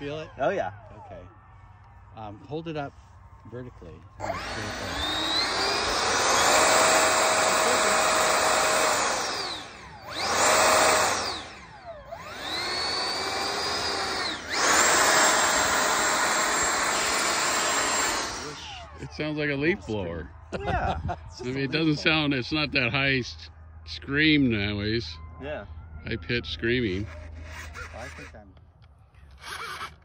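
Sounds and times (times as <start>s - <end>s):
electric ducted fan whine: 4.2s - 23.0s.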